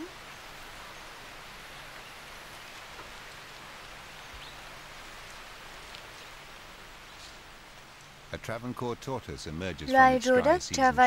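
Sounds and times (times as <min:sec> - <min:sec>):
rain falling on leaf litter: 0:00.0 - 0:09.2
faint ticks: 0:05.2 - 0:06.3.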